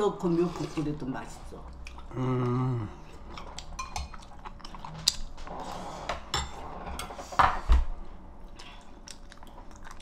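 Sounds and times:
chewing: 0:01.6 - 0:06.2, 0:08.4 - 0:10.0.

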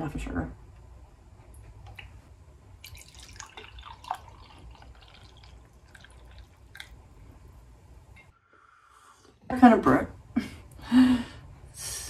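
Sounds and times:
coffee pouring into a mug: 0:02.8 - 0:07.0.

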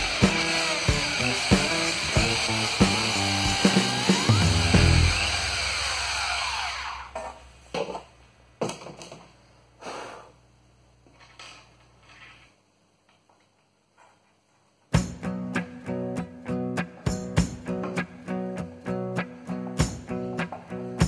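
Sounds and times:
power drill motor whining: 0:00.0 - 0:07.3.

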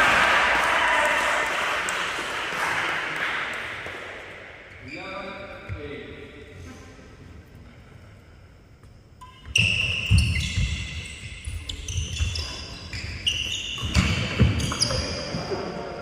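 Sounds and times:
shoes squeaking on wooden floor: 0:09.3 - 0:15.6.

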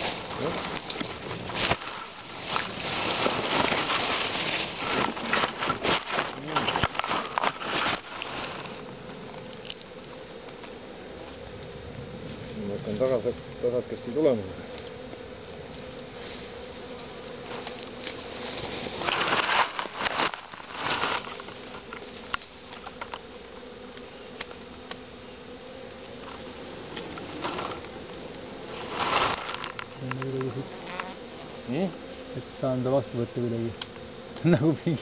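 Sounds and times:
rustling: 0:00.0 - 0:11.6, 0:14.6 - 0:25.0, 0:25.8 - 0:32.2
bees buzzing: 0:00.0 - 0:35.0.

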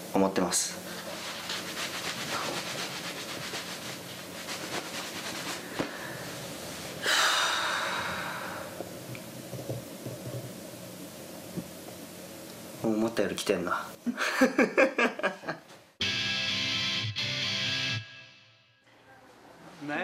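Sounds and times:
towel rubbing wet hair: 0:00.9 - 0:07.0
person exhaling loudly: 0:07.0 - 0:08.8.

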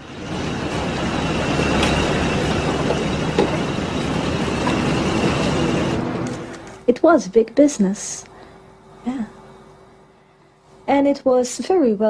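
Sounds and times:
traffic rumble and hiss: 0:00.0 - 0:09.6
faint high whine: 0:00.0 - 0:12.0.

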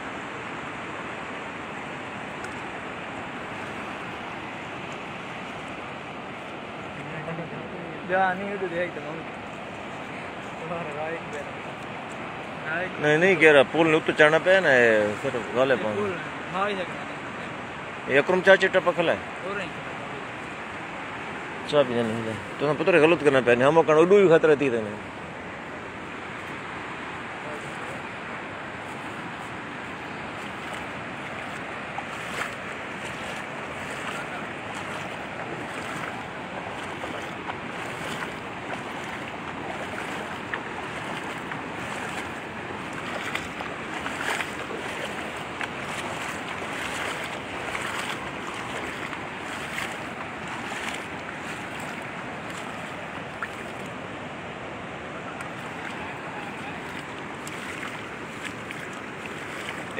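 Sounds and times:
floodwater rushing: 0:00.0 - 0:59.9.

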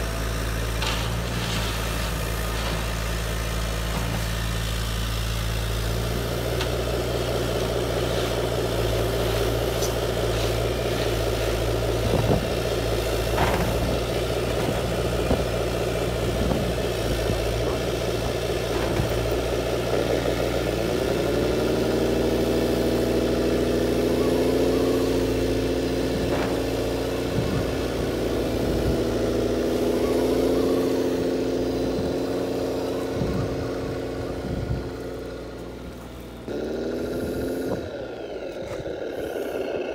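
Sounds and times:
low motor hum: 0:00.0 - 0:39.9
rising whine: 0:20.8 - 0:39.9.

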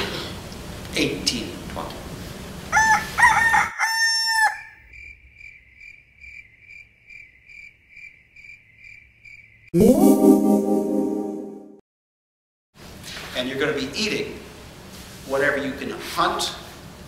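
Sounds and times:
rooster crowing: 0:02.7 - 0:04.9
cricket chirping: 0:04.8 - 0:09.7.

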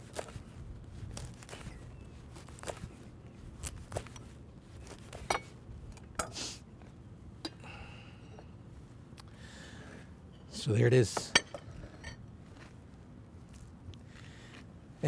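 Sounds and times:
bread crust crackling: 0:00.0 - 0:05.3.

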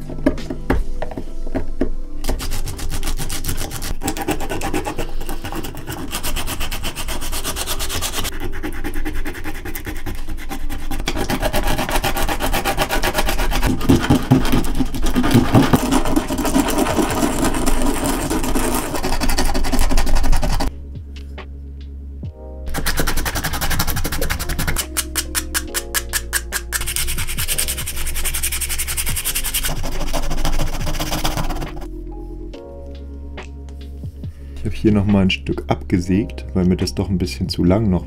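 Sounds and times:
sandpaper rasping on wood: 0:02.3 - 0:20.7, 0:22.7 - 0:31.9.

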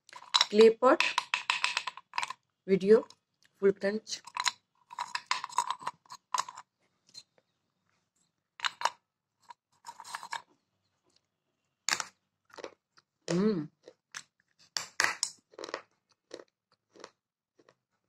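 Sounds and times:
clay shards clinking in cup: 0:04.2 - 0:06.6
clay chewing crunches: 0:12.4 - 0:14.6, 0:15.4 - 0:17.9.

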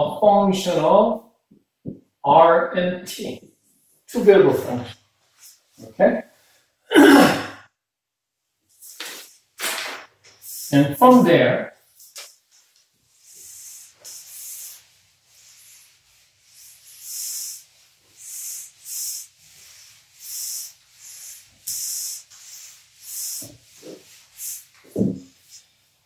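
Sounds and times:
eraser wiping whiteboard: 0:08.7 - 0:26.0.

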